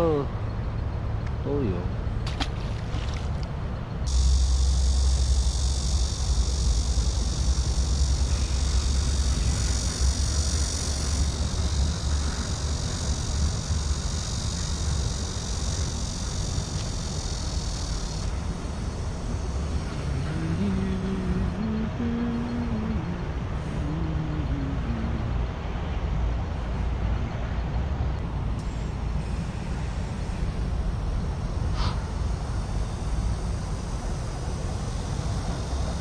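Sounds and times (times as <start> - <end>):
high even buzz: 4.1 - 25.4, 28.6 - 36.0.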